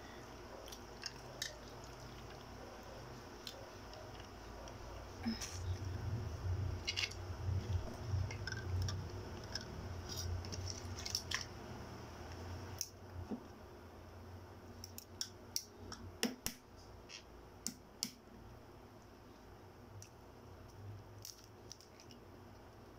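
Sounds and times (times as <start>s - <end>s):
low rumble: 5.2s - 10.6s.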